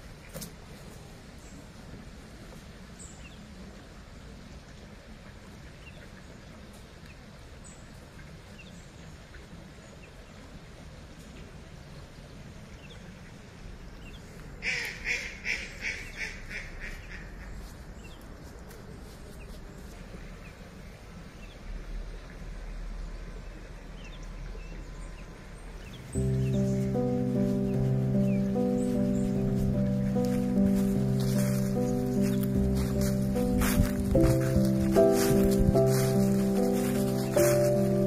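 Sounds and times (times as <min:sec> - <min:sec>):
duck quacking: 0:14.6 - 0:17.3
small birds chirping: 0:23.9 - 0:38.0.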